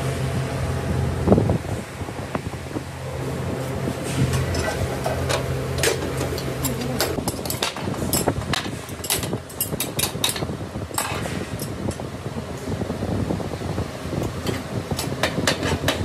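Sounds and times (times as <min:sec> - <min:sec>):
steady machine hum: 0:00.0 - 0:16.0
metal clanks and scrapes: 0:04.0 - 0:11.8.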